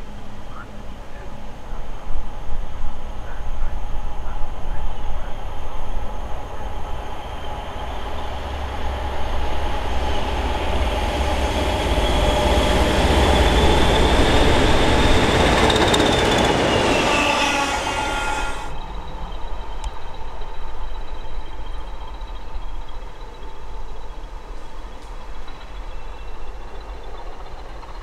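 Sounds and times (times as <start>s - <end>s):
diesel locomotives passing: 0.0s - 28.0s
high whistle: 15.8s - 19.0s.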